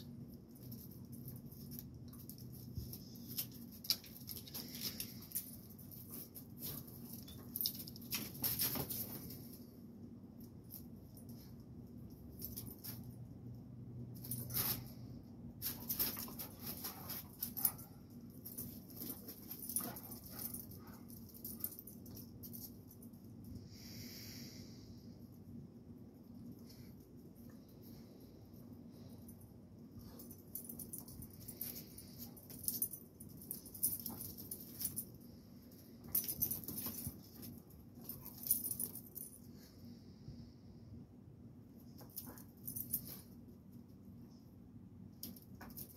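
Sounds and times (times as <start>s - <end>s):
collars jingling: 15.6s - 23.4s, 30.0s - 39.5s.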